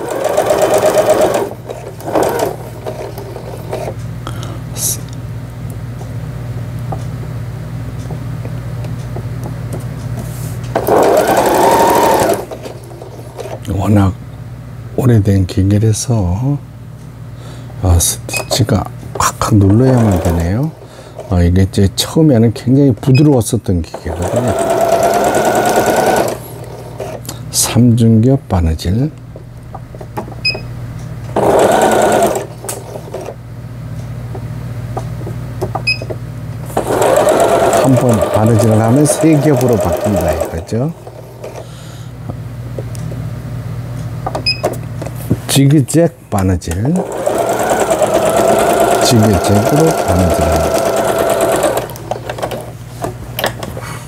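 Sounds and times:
sewing machine stitching: 0.0s - 3.9s, 10.7s - 13.6s, 19.6s - 20.7s, 23.9s - 27.2s, 31.4s - 33.4s, 36.7s - 41.6s, 47.0s - 52.7s
steady low hum: 0.0s - 54.0s.

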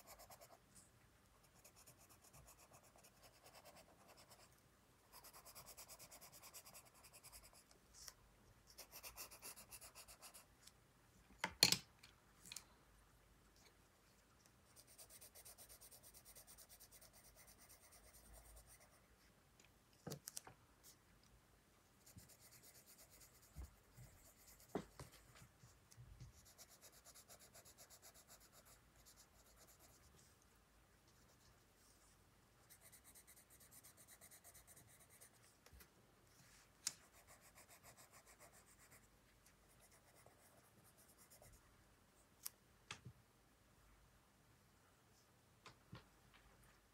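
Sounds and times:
pencil scratching on paper: 0.0s - 0.6s, 1.4s - 7.8s, 8.7s - 10.5s, 14.8s - 19.0s, 22.0s - 25.3s, 26.2s - 30.3s, 32.6s - 35.5s, 37.0s - 39.1s, 39.7s - 41.6s.

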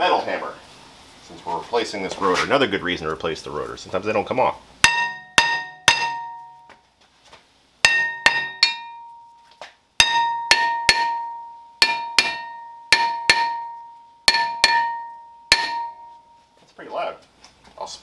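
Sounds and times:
hammer striking metal rotor: 4.8s - 6.6s, 7.8s - 9.2s, 10.0s - 16.4s.

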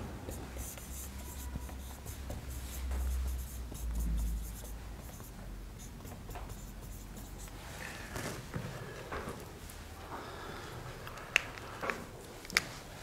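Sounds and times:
marker scratching on whiteboard: 0.0s - 7.8s.

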